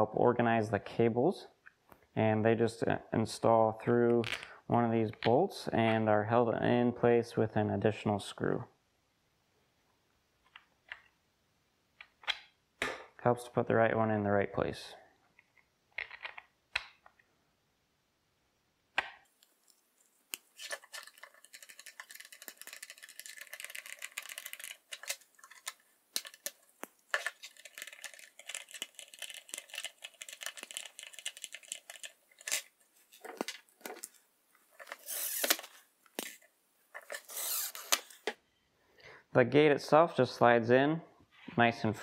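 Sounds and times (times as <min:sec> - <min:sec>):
screws clicking into plastic: 0:34.9 - 0:36.4, 0:37.1 - 0:38.2.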